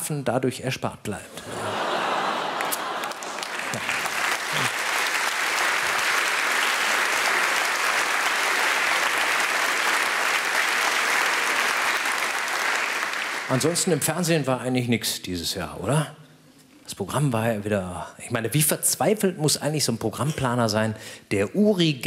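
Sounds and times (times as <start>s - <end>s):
audience applauding: 1.4s - 14.3s.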